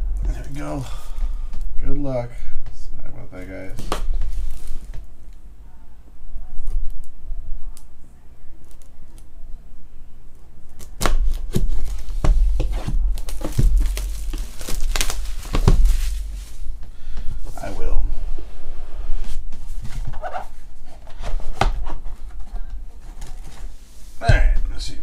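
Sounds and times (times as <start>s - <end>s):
plastic wrap crackling: 10.7s - 16.8s
knife slitting plastic wrap: 13.2s - 16.2s.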